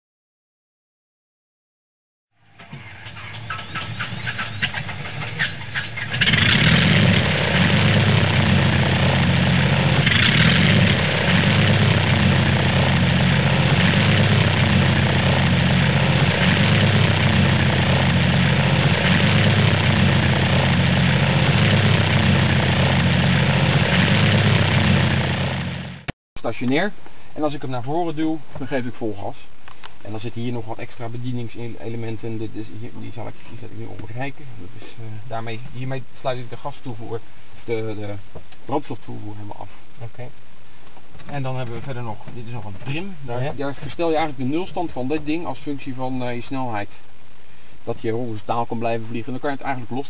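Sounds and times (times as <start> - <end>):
engine starter clicks: 2.5 - 6.7
aircraft engine droning: 3.0 - 26.1.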